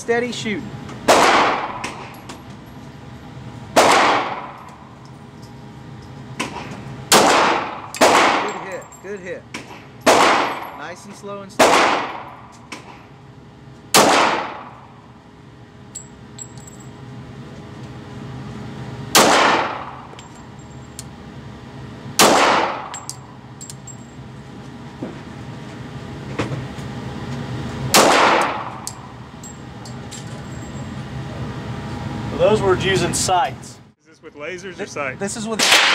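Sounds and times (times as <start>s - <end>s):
pistol shots echoing: 1.1s - 1.8s, 3.8s - 4.6s, 7.1s - 8.6s, 10.1s - 10.7s, 11.6s - 12.4s, 14.0s - 14.7s, 19.2s - 20.0s, 22.2s - 22.9s, 28.0s - 28.7s.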